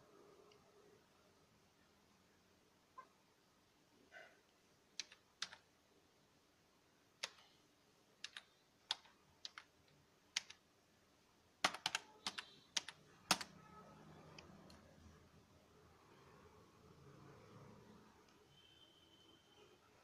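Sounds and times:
computer keyboard keystrokes: 0:05.0 - 0:05.6, 0:07.2 - 0:07.5, 0:08.2 - 0:09.7, 0:10.3 - 0:10.6, 0:11.6 - 0:13.5.

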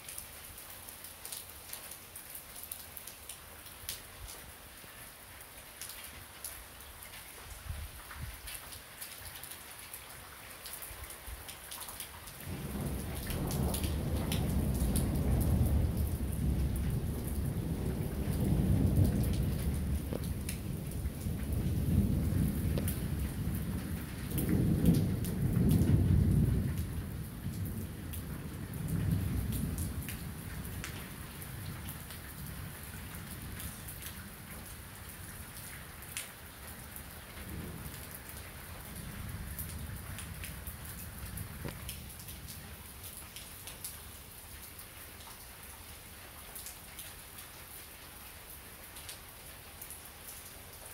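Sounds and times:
rain falling steadily: 0:00.0 - 0:50.9
raindrops ticking on surfaces: 0:00.0 - 0:50.9
rolling thunder: 0:12.5 - 0:34.1, 0:37.4 - 0:41.9.

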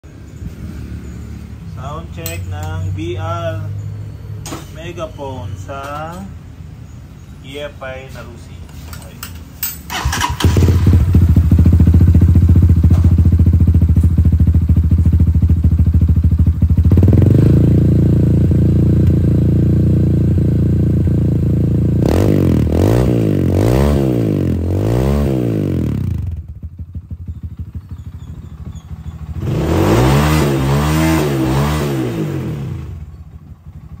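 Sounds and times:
motorcycle engine idling and revving: 0:00.0 - 0:07.3, 0:09.2 - 0:34.0.

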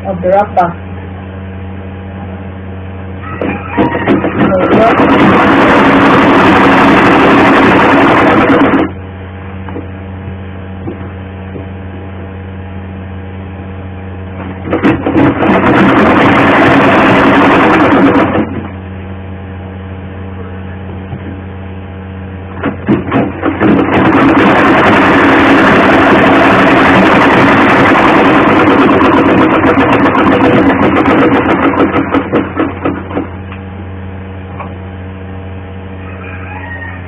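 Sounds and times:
steady low hum: 0:00.0 - 0:37.0
sewing machine stitching: 0:04.0 - 0:09.0, 0:14.6 - 0:18.7, 0:22.6 - 0:33.3.

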